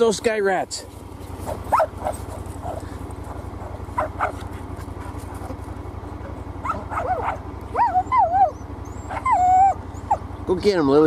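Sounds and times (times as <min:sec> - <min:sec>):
vehicle engine running: 0:00.0 - 0:11.0
dog yipping and whining: 0:01.4 - 0:02.8, 0:03.6 - 0:04.4, 0:06.2 - 0:10.4.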